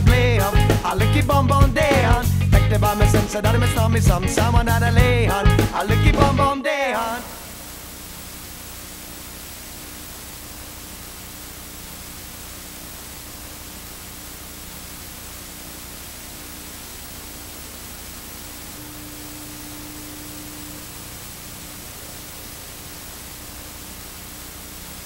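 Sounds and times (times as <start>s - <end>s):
static hiss: 0.0s - 25.0s
faint low hum: 7.3s - 25.0s.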